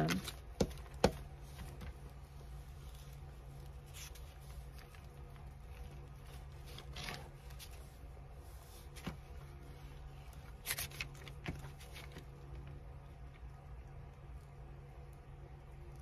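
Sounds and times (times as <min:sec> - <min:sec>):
steady low hum: 0:00.0 - 0:16.0
paper rustling: 0:01.4 - 0:12.4.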